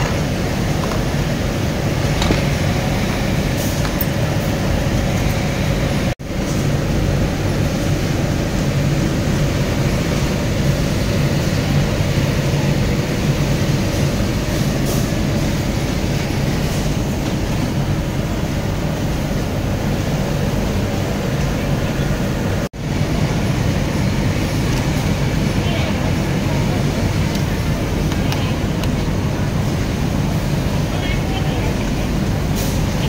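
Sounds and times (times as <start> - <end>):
industrial sewing machinery humming: 0.0 - 33.0.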